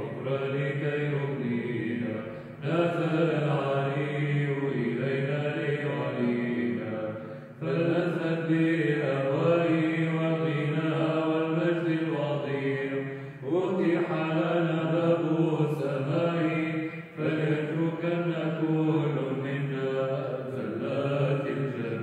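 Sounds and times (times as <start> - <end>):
person chanting: 0.0 - 22.0
short breaths: 2.3 - 2.6, 7.2 - 7.6, 13.1 - 13.4.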